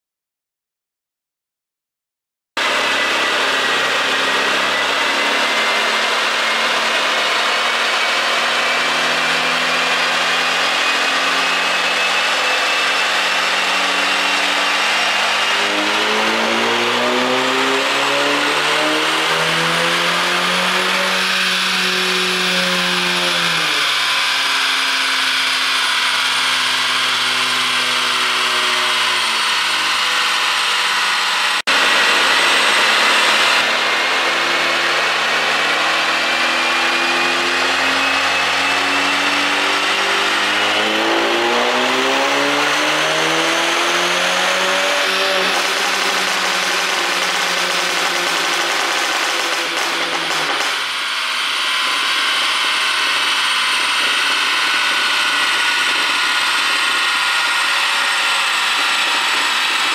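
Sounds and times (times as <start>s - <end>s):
loud rushing noise: 2.6s - 23.9s, 40.0s - 52.4s
car engine revving at full throttle: 2.6s - 59.9s.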